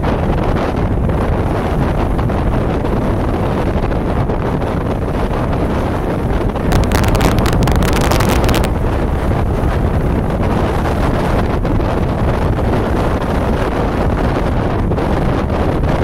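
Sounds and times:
wind rumbling on microphone: 0:00.0 - 0:16.0
crackling hiss: 0:06.6 - 0:08.7.

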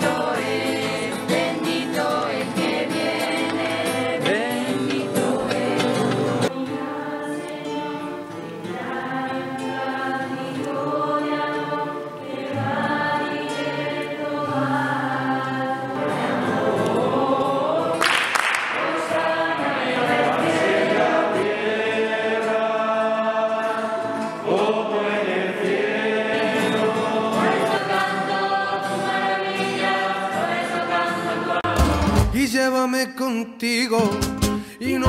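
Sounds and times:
choir singing held notes: 0:00.0 - 0:32.3.

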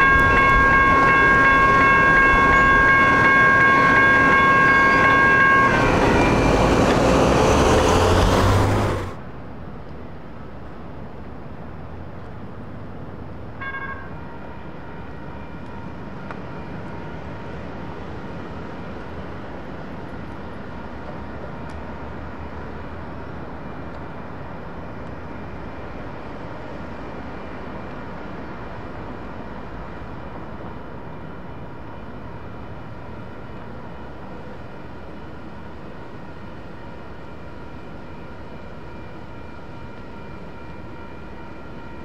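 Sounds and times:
railroad crossing bell ringing: 0:00.0 - 0:08.2
street noise: 0:00.0 - 0:42.0.

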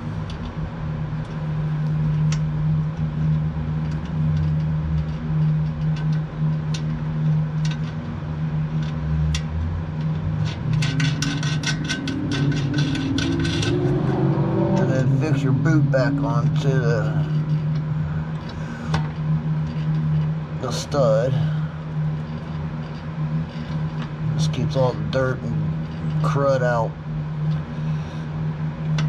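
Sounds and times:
low engine hum: 0:00.0 - 0:29.0
small metal parts clicking: 0:03.8 - 0:08.0, 0:08.7 - 0:14.0.

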